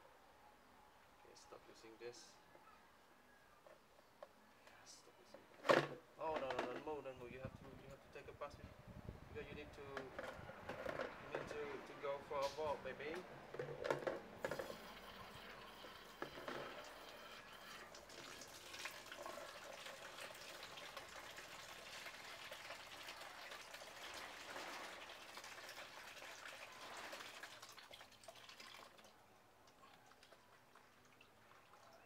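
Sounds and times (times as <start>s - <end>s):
tap water splashing into plastic basin: 17.9s - 29.0s.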